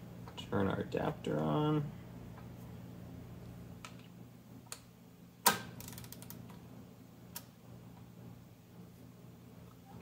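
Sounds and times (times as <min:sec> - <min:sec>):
ratchet clicks: 0:05.8 - 0:06.4.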